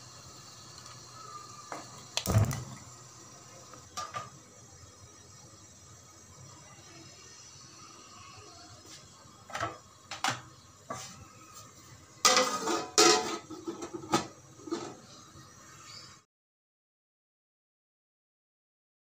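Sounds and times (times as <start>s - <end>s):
metal lid clanking on pot: 12.2s - 15.0s.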